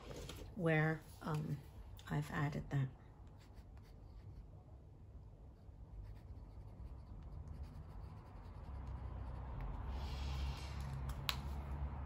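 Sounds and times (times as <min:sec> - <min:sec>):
pen scratching on paper: 0:03.3 - 0:04.4, 0:06.0 - 0:10.2.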